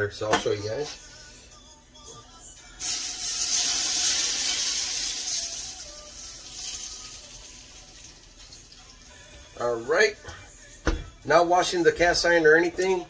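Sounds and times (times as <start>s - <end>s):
oil sizzling in skillet: 2.8s - 9.4s.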